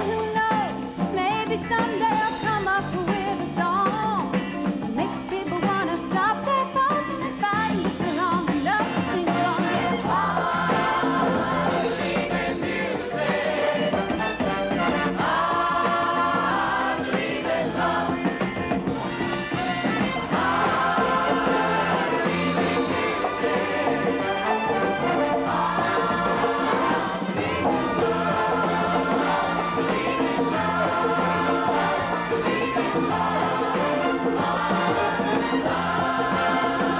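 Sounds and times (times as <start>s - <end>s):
band playing: 0.0s - 36.9s
voices singing together: 7.9s - 36.9s.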